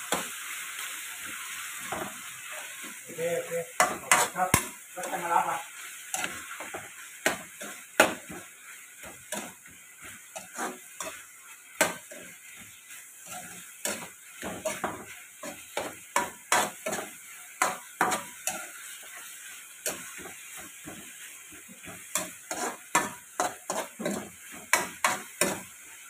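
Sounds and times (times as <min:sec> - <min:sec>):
food sizzling: 0:00.0 - 0:26.0
spatula scraping a wok: 0:00.0 - 0:26.0.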